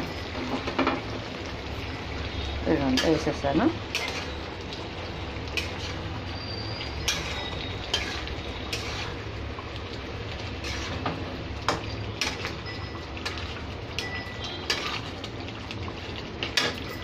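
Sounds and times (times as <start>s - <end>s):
curry bubbling in a pan: 0.0s - 17.0s.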